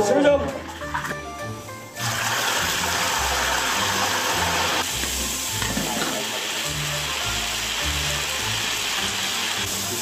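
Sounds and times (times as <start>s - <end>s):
oil sizzling in a wok: 0.8s - 10.0s.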